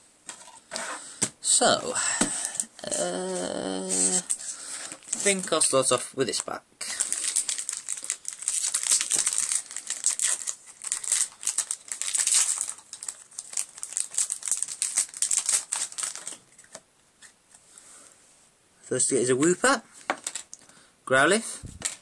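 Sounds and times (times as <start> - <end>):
foil wrapper crinkling: 6.9 - 16.8.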